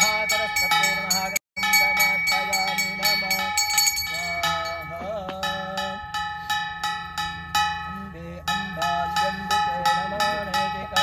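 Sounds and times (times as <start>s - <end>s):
brass bell ringing rapidly: 0.0s - 11.0s.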